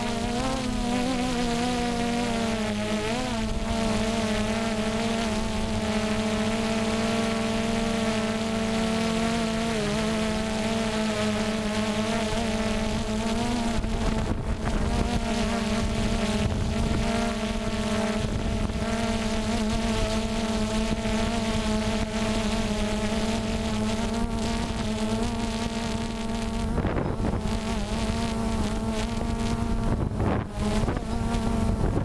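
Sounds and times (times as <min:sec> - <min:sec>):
drone propellers buzzing: 0:00.0 - 0:32.0
wind on microphone: 0:12.2 - 0:32.0.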